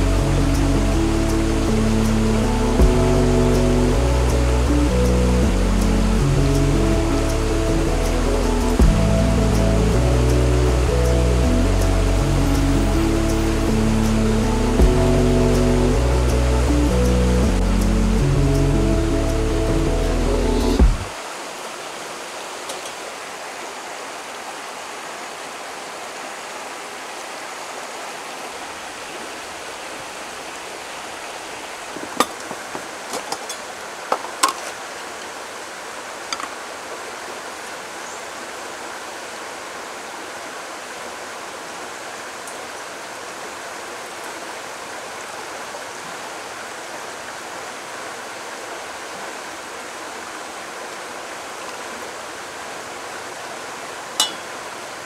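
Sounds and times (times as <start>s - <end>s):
stream flowing: 0.0s - 55.0s.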